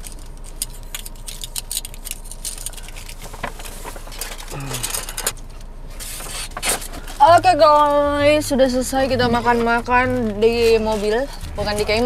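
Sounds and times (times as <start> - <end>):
food packaging rustling and clinking: 0.0 - 7.2.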